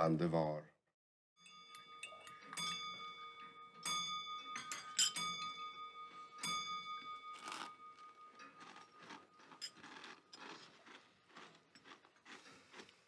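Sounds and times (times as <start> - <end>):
dishes and glassware clinking: 1.4 - 9.8
steady clear ringing tone: 1.4 - 9.8.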